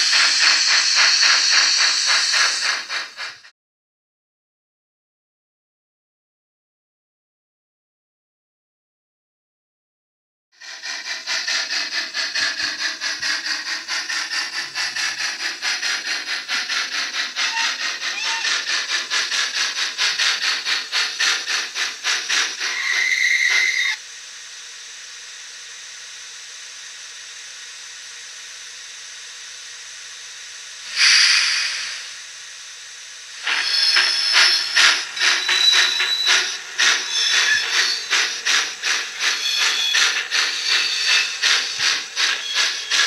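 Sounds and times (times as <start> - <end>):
steady steam hiss: 0.0 - 3.5, 10.6 - 43.0
steam locomotive chuffing: 0.0 - 3.5, 10.6 - 43.0
locomotive whistle: 17.4 - 18.5, 22.7 - 24.0.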